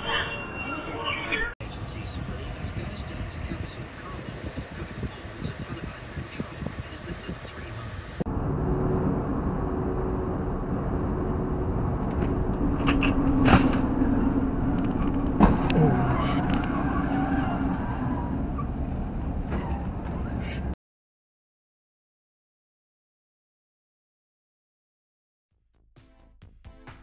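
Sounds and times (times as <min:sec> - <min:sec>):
road and engine noise in cabin: 0:01.4 - 0:20.8
steady tone: 0:07.2 - 0:14.7.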